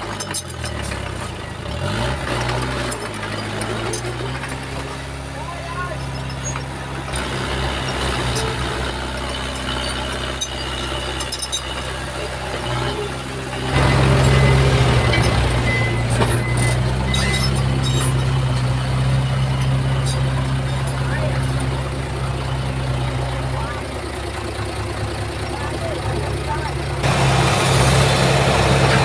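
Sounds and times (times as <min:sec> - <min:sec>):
heavy machinery diesel engine: 0:00.0 - 0:29.0.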